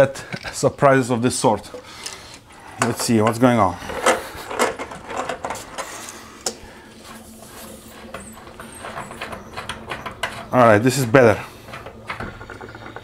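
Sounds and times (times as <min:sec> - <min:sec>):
tools and pipe fittings clicking: 0:01.6 - 0:06.6, 0:07.6 - 0:10.9.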